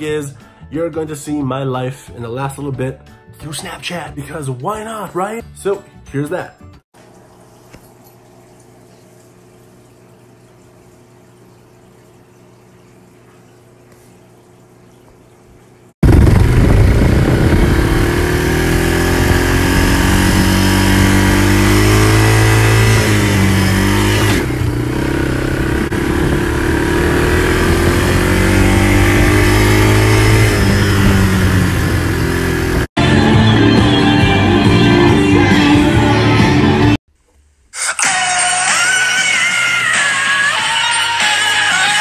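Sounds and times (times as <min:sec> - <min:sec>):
atv engine revving: 0:16.0 - 0:33.3.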